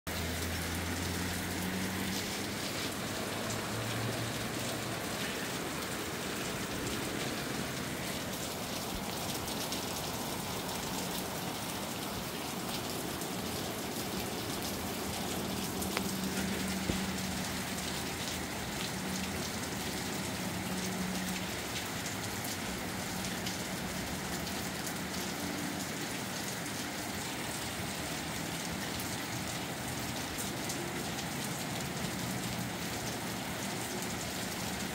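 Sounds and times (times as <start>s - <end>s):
rain pattering: 0.1s - 34.9s
sharp drip ticks: 14.0s - 25.2s.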